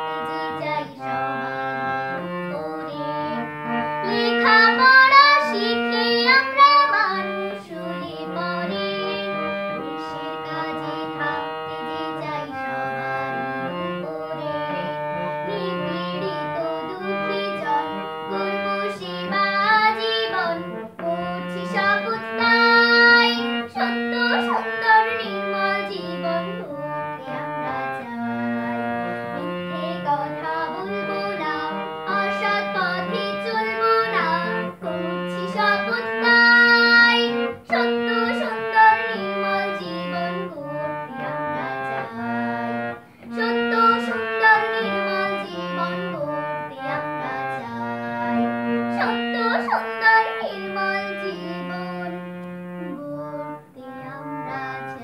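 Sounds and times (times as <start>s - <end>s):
girl singing: 0.0s - 55.0s
melodic accompaniment of held notes: 0.0s - 55.0s.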